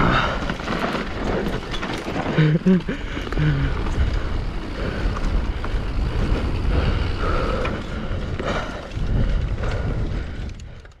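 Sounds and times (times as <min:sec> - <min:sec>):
bike rattling and knocking: 0:00.0 - 0:11.0
bike tyres rumbling over rocks: 0:00.0 - 0:11.0
wind on microphone: 0:03.3 - 0:11.0.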